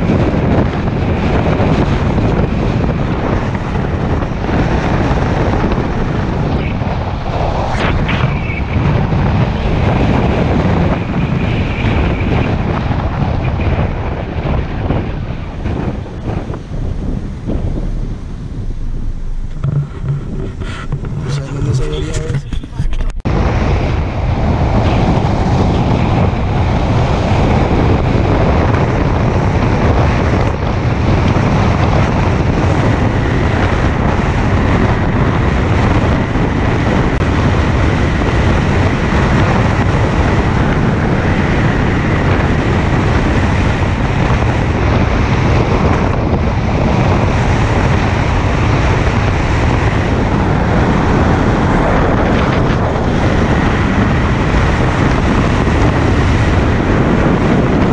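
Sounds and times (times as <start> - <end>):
road and tyre noise: 0.0 - 57.9
wind rushing over microphone: 0.0 - 57.9.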